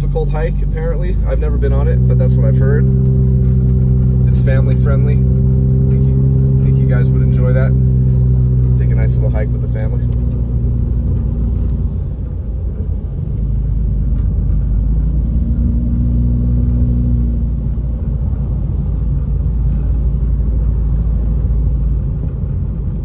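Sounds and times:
car engine hum: 0.0s - 23.0s.

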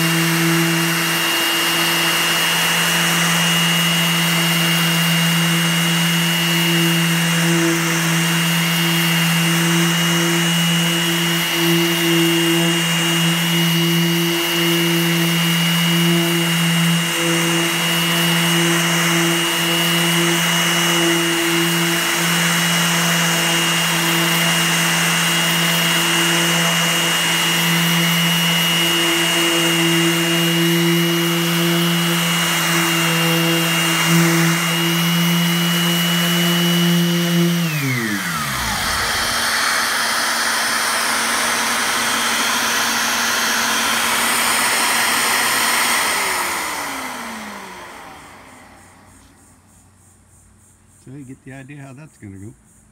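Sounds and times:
orbital sander sanding: 0.0s - 49.5s
dust vacuum whine and hiss: 0.0s - 50.4s.

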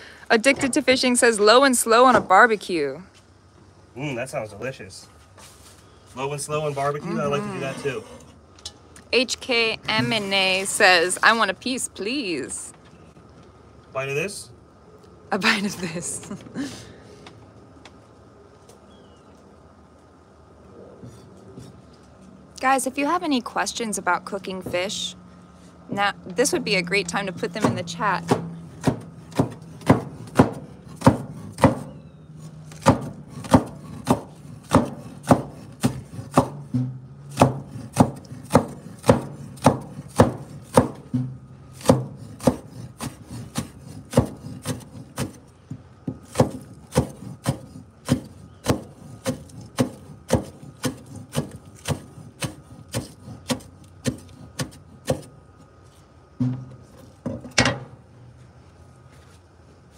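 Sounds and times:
cleaver chopping on wooden board: 27.3s - 32.0s, 32.7s - 45.4s, 46.1s - 55.3s.

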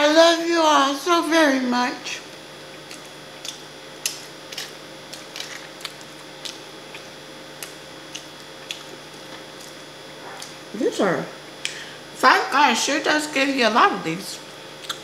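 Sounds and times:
faint steady hum: 0.0s - 15.0s
chewing mouth clicks and smacks: 2.8s - 9.8s, 14.8s - 15.0s.

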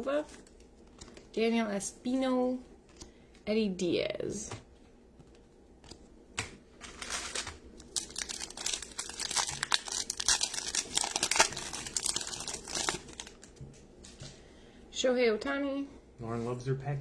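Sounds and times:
foil pack tearing and crinkling: 6.9s - 13.5s.

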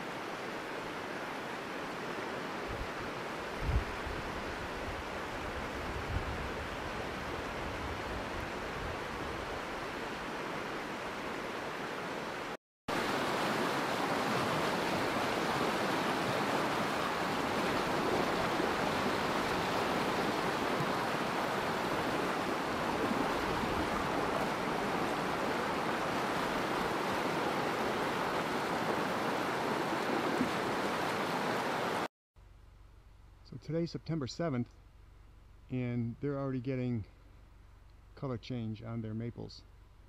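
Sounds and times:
river rushing over rocks: 6.5s - 32.1s.

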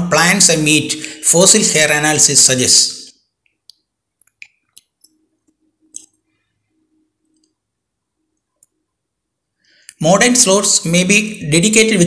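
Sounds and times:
faint irregular clicks: 3.4s - 6.4s, 7.2s - 7.6s.

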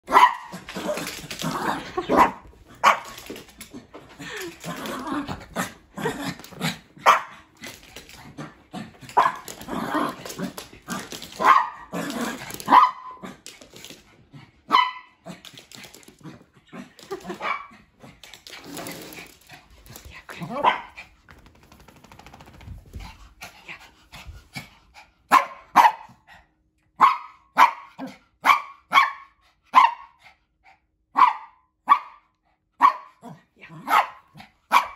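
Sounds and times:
small dogs barking: 0.1s - 0.6s, 11.4s - 12.0s, 14.7s - 15.2s, 27.0s - 30.1s, 31.2s - 32.2s, 33.8s - 34.9s.

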